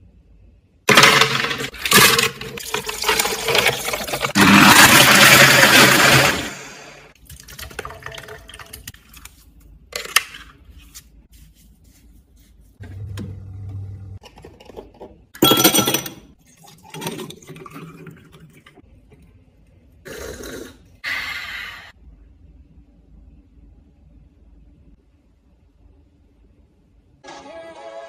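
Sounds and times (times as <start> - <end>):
ice cubes clattering into glass: 0.9 - 6.5
cups and glassware clinking: 14.2 - 17.8.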